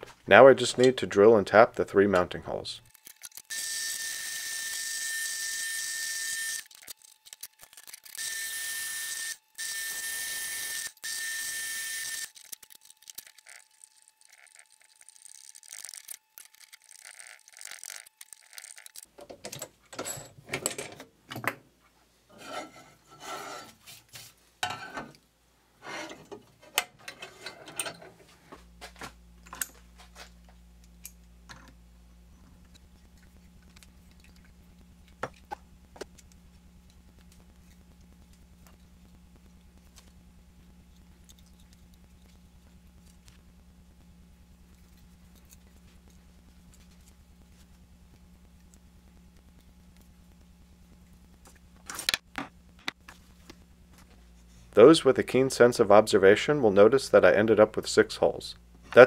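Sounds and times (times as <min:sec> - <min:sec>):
metallic clicks and scrapes: 0:06.6 - 0:08.2, 0:12.2 - 0:19.6
drill press whine: 0:08.0 - 0:12.3
low hum: 0:27.1 - 0:59.0.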